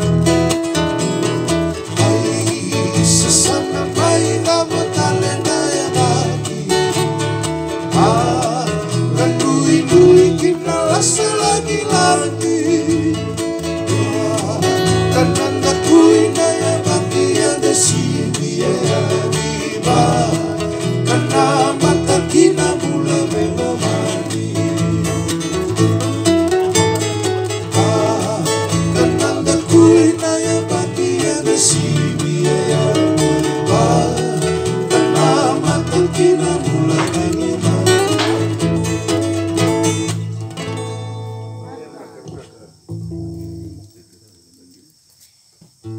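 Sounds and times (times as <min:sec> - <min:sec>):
amplified acoustic guitar: 0:00.0 - 0:43.8
bass guitar: 0:00.0 - 0:43.9
person singing: 0:01.8 - 0:25.6, 0:27.6 - 0:40.4.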